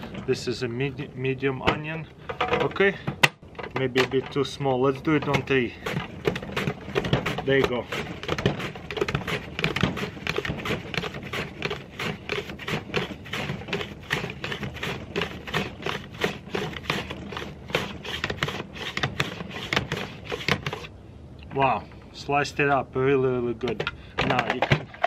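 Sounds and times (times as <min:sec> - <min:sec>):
mandoline slicer clacking: 0:05.1 - 0:20.9.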